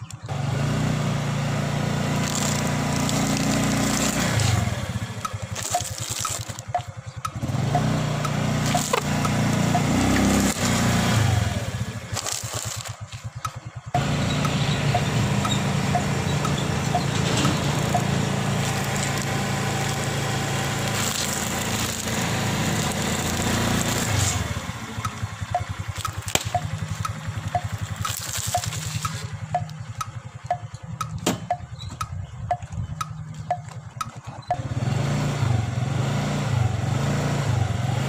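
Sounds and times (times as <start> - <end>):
motor scooter engine running: 0.0 - 38.0
tyre crunching snack packets: 2.0 - 14.0, 17.2 - 31.0.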